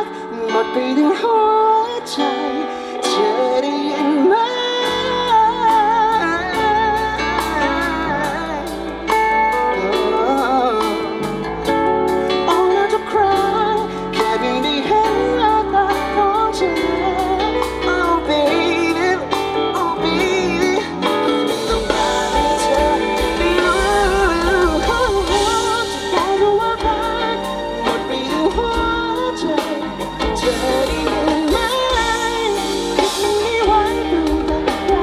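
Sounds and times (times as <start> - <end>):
guitar: 0.0 - 35.0
person singing: 0.0 - 35.0
bass: 4.2 - 35.0
steady drum beat: 12.5 - 35.0.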